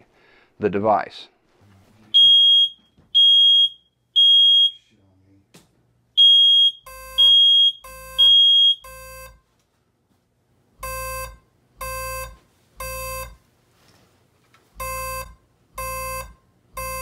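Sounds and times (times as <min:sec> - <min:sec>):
smoke alarm high beeps: 0:02.2 - 0:04.9, 0:06.2 - 0:09.4, 0:10.8 - 0:13.4, 0:14.8 - 0:17.0
buzzy pulsing alarm tone: 0:06.2 - 0:09.4, 0:10.8 - 0:13.4, 0:14.8 - 0:17.0.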